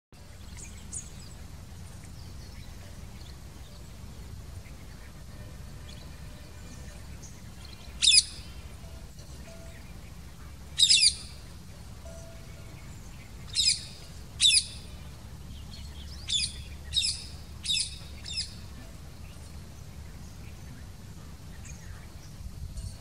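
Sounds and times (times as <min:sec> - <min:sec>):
low background rumble: 0:00.2 - 0:23.0
parakeet calling: 0:04.6 - 0:19.4
high chirps: 0:07.1 - 0:19.8.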